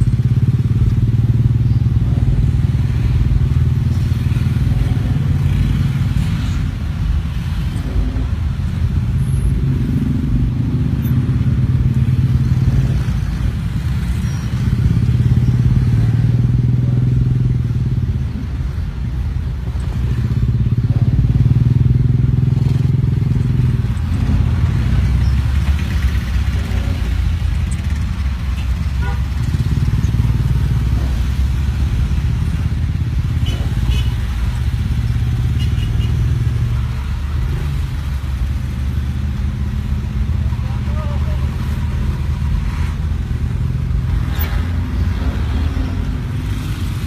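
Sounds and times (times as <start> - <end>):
motorcycle engines: 0.0 - 47.0.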